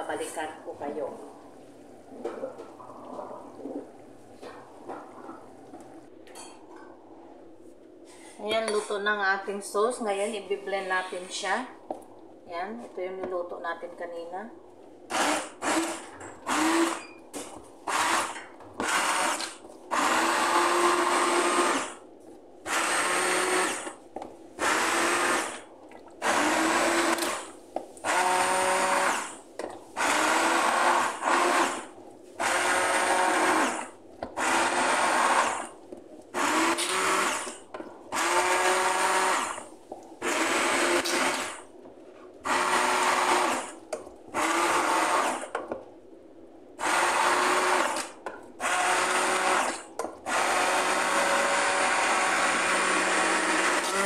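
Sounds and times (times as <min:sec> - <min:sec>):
stick blender whirring: 0:15.1 - 0:17.1, 0:17.8 - 0:22.0, 0:22.6 - 0:24.0, 0:24.6 - 0:25.6, 0:26.2 - 0:29.4, 0:30.0 - 0:41.6, 0:42.4 - 0:45.6, 0:46.8 - 0:54.0.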